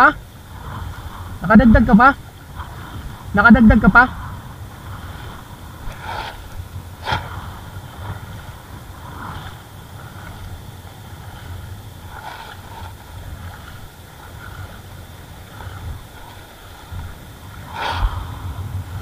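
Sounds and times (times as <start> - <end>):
water swishes: 0.0 - 19.0
wind rumble on microphone: 0.0 - 19.0.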